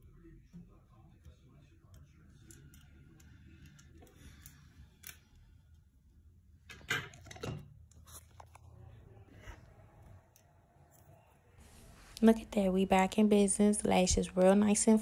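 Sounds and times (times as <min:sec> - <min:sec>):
metal tweezers clicking and scraping: 0:01.8 - 0:05.4.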